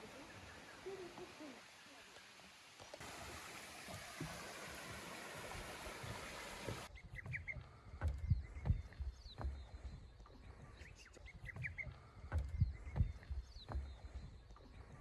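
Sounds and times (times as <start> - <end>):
small birds chirping: 0.0 - 3.0, 6.1 - 15.0
rushing mountain stream: 0.0 - 7.4
wind buffeting microphone: 4.8 - 15.0.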